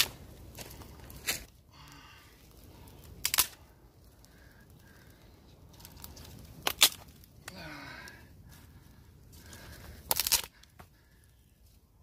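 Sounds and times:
campfire burning: 0:00.0 - 0:12.0
sharp fire pops: 0:02.9 - 0:03.7, 0:05.8 - 0:07.6.

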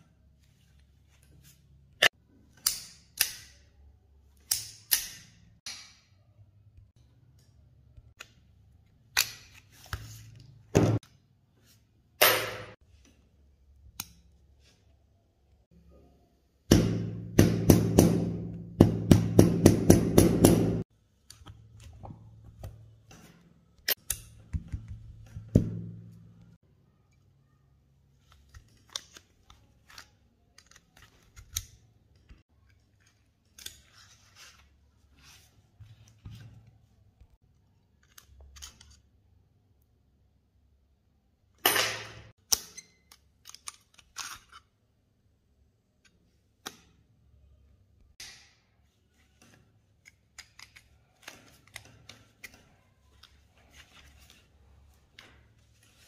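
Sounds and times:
pistol parts clicking: 0:41.8 - 0:44.6.

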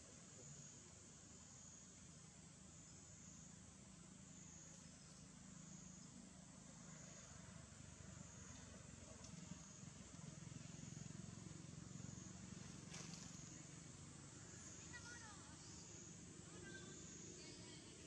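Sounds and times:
faint high insect drone: 0:00.0 - 0:18.0.

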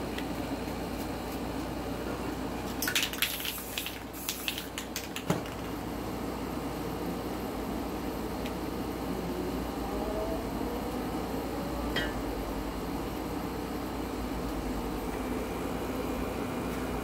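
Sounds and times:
spray paint cans clicking and rattling: 0:02.7 - 0:05.8.

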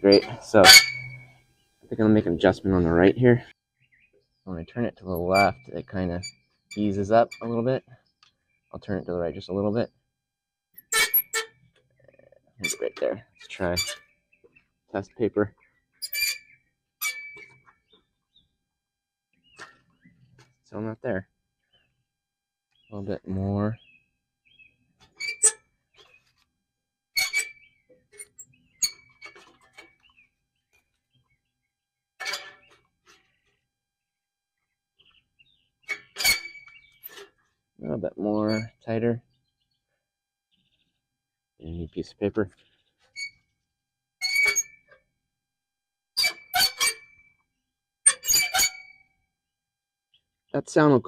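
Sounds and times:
faint chirps and squeaks: 0:00.0 - 0:10.1, 0:10.7 - 0:18.6, 0:19.3 - 0:22.1, 0:22.7 - 0:33.7, 0:34.6 - 0:45.2, 0:46.2 - 0:49.3.

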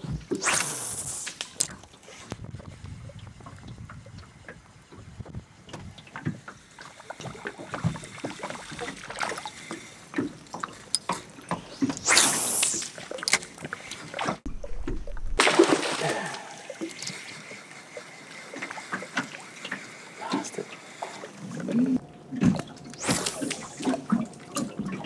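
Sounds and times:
lure splashing on water: 0:00.3 - 0:02.3, 0:06.8 - 0:17.5, 0:22.4 - 0:25.0.

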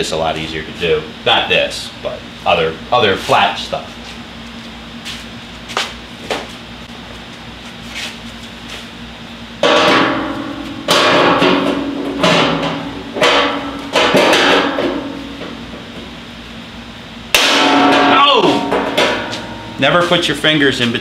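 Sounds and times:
hammer striking metal panel: 0:09.6 - 0:15.3, 0:17.3 - 0:19.8
metal panel ringing: 0:09.6 - 0:15.9, 0:17.3 - 0:20.3.

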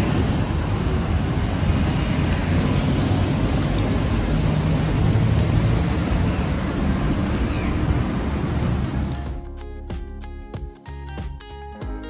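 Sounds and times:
road traffic rumble: 0:00.0 - 0:09.6.

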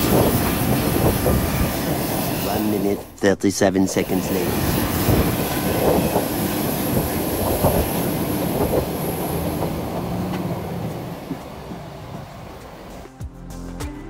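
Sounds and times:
jet engine whine: 0:00.0 - 0:13.1
footsteps on metal stairs: 0:04.6 - 0:13.2.

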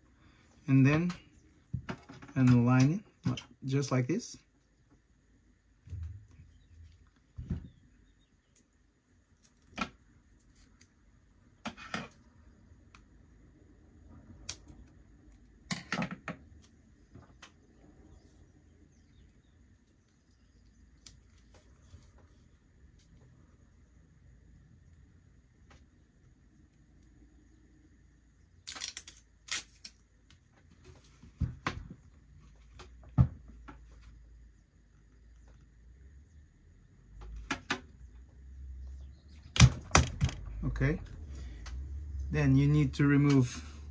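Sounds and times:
tape crackling and rustling: 0:08.4 - 0:12.2, 0:28.6 - 0:33.0.

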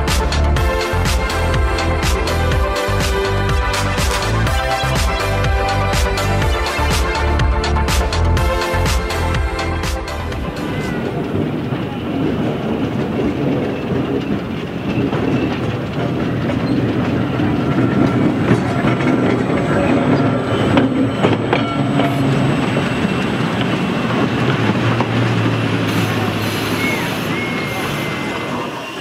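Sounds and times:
train wheels clattering over rails: 0:00.0 - 0:29.0.

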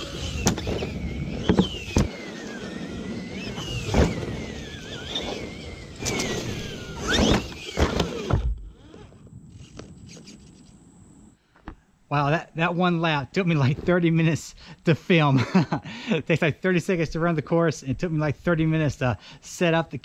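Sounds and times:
rc truck motor whining: 0:00.0 - 0:11.4
tyres on pavement and gravel: 0:00.0 - 0:11.7.

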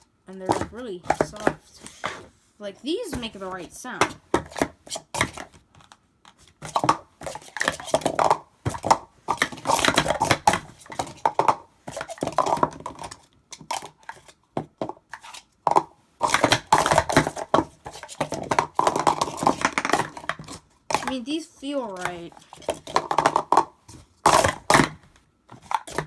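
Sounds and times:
person speaking: 0:00.3 - 0:04.2, 0:21.0 - 0:22.4
plastic cups clattering: 0:00.5 - 0:02.2, 0:04.0 - 0:21.3, 0:21.9 - 0:26.0.

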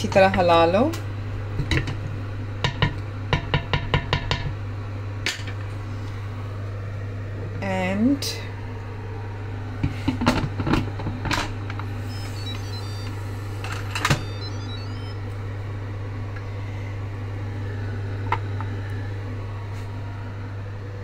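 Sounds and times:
steady low hum: 0:00.0 - 0:21.0
high beeps: 0:12.0 - 0:15.2.

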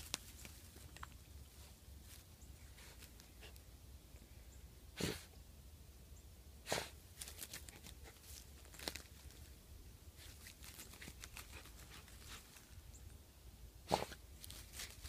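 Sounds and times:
grass and roots tearing: 0:07.1 - 0:12.8, 0:14.0 - 0:15.0.

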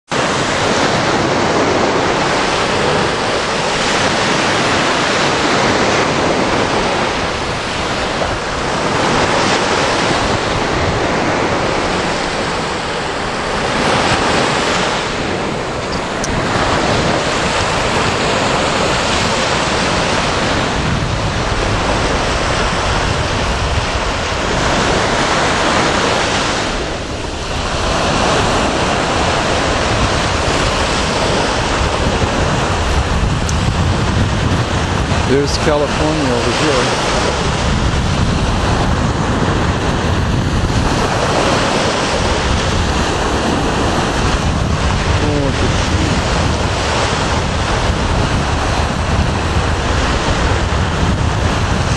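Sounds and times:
waves washing up a beach: 0:00.0 - 0:51.9
wind rumbling on microphone: 0:00.0 - 0:51.9.

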